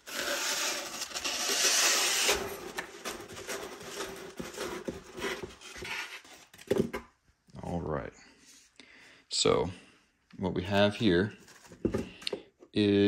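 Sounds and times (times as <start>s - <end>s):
rifle scraping cardboard and foam: 0.0s - 6.5s.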